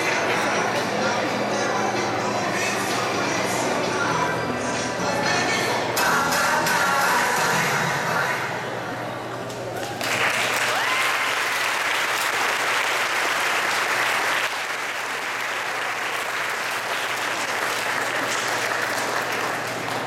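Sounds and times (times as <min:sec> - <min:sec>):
audience applauding: 0:09.8 - 0:20.0.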